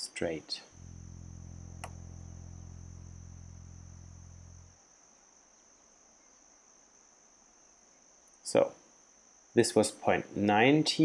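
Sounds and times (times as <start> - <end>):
faint hiss: 0.0 - 11.0
low hum: 0.6 - 4.9
high-pitched whine: 0.7 - 4.8.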